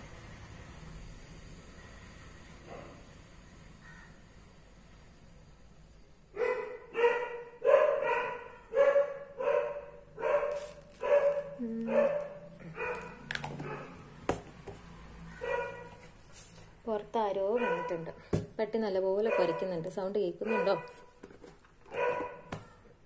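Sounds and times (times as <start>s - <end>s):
dog barking: 6.4s - 14.0s, 15.3s - 16.0s, 17.5s - 18.1s, 19.2s - 19.8s, 20.4s - 21.1s, 21.9s - 22.5s.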